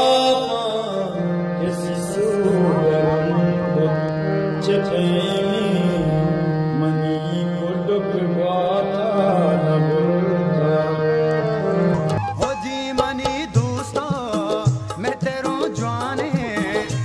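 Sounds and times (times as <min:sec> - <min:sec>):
wavering melody: 0:00.0 - 0:13.7
steady low drone: 0:00.4 - 0:08.3.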